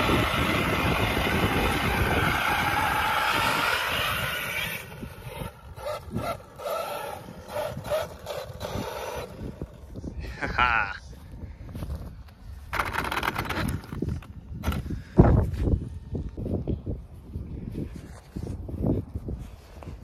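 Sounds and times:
electric toy truck motor: 0:00.0 - 0:10.0, 0:12.7 - 0:14.3.

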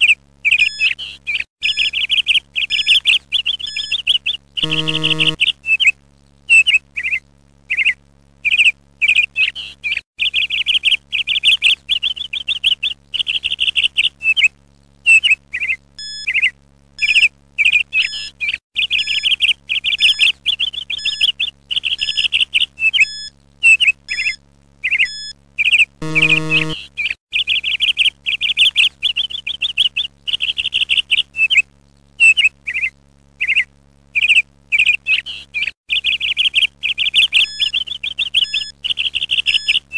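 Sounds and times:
songbird chirping and trilling: 0:00.0 - 0:05.9, 0:15.1 - 0:39.9
short low buzzing tone: 0:04.6 - 0:05.4, 0:26.0 - 0:26.8.

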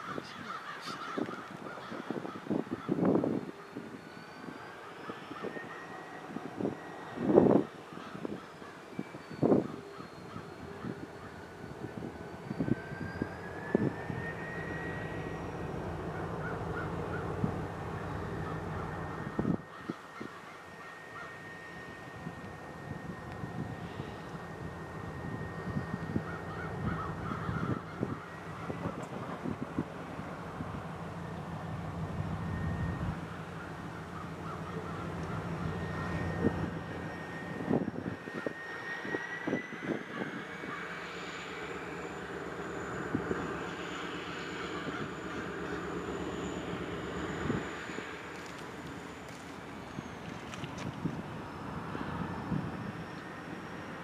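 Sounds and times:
crows cawing faintly: 0:00.0 - 0:03.8, 0:14.2 - 0:23.1, 0:23.8 - 0:29.3, 0:33.5 - 0:36.6, 0:39.9 - 0:49.5
diesel locomotive engines revving: 0:00.0 - 0:54.0
turbocharger whine: 0:00.0 - 0:54.0.

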